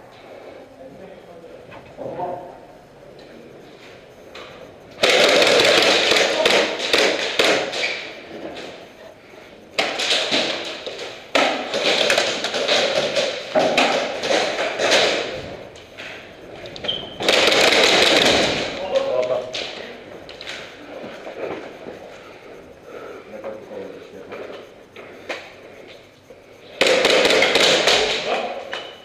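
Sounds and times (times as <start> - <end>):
airsoft guns firing: 5.0 - 8.1, 9.8 - 15.3, 17.2 - 19.8, 26.7 - 28.6.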